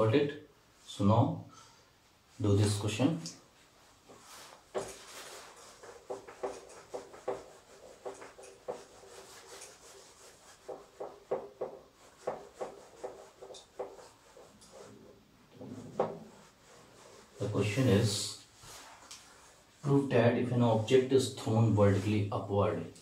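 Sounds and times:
duster rubbing whiteboard: 3.9 - 20.0.

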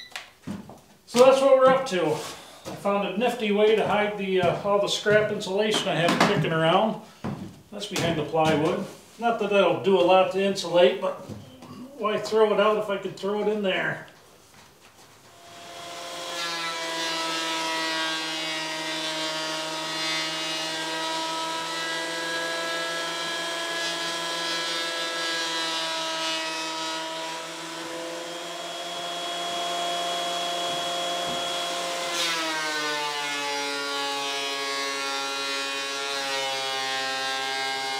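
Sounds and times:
thickness planer motor whine: 15.3 - 37.9.

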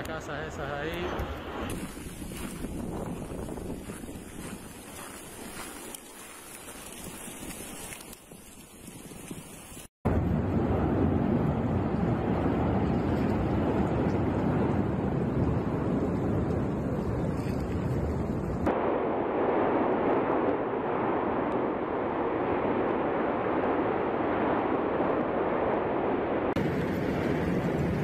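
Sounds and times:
volcanic eruption roar: 10.1 - 28.0.

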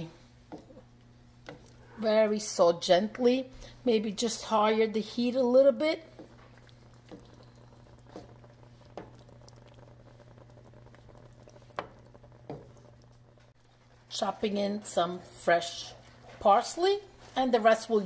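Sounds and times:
wooden spoon stirring: 0.0 - 2.7, 4.2 - 14.2
cream sauce bubbling: 0.4 - 2.0, 4.3 - 14.3.

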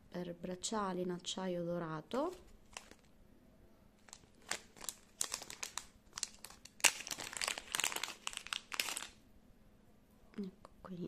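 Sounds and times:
plastic bag crinkling: 2.1 - 3.1, 4.0 - 9.2.

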